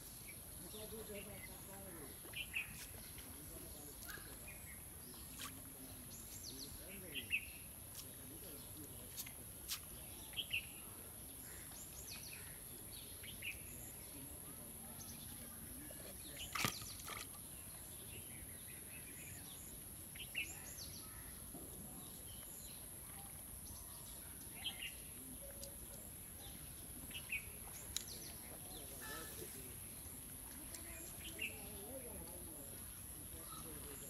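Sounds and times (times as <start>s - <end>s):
steady background hiss: 0.0s - 16.5s.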